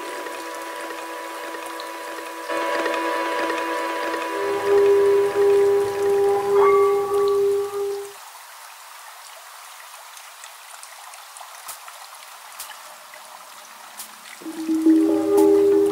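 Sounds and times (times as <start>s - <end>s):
steady musical tones: 0.0s - 8.1s, 14.4s - 15.9s
swimming pool water hiss: 11.3s - 15.9s
sharp drip-like clicks: 11.4s - 12.9s.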